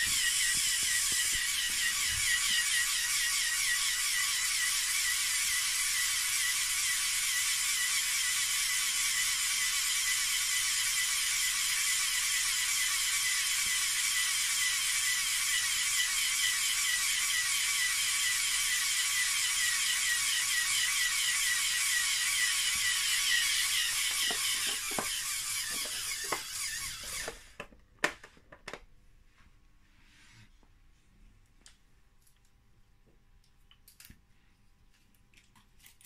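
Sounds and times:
pneumatic compressor whirring: 0.0 - 28.2.

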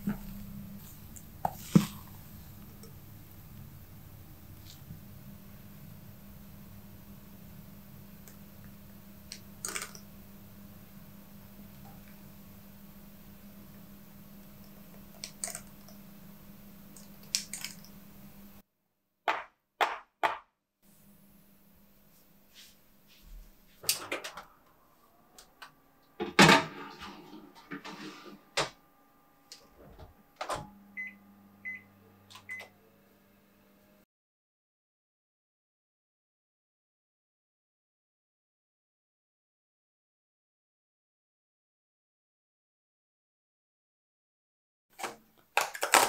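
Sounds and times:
oven control panel beeps: 30.4 - 32.8.

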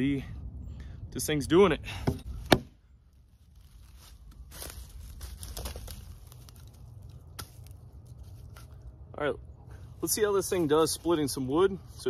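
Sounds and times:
rustling in dry leaves: 3.0 - 9.0.

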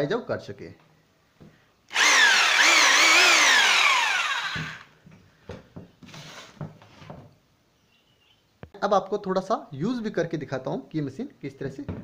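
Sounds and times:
rotary hammer drill motor whine: 1.9 - 4.9.

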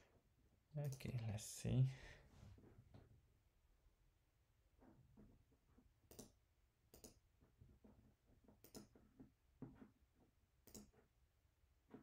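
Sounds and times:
computer mouse clicks: 0.8 - 1.2, 6.0 - 7.2, 8.6 - 9.1, 10.6 - 11.1.

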